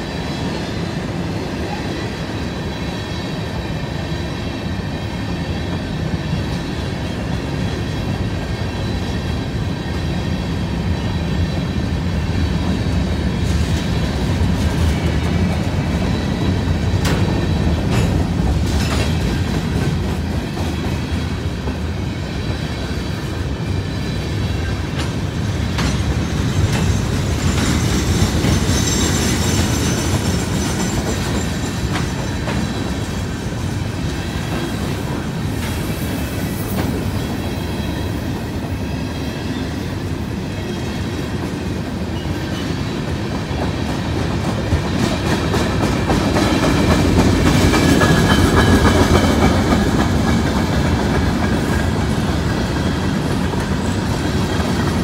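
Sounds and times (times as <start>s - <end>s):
freight train wheels rumbling on rail: 0.0s - 55.0s.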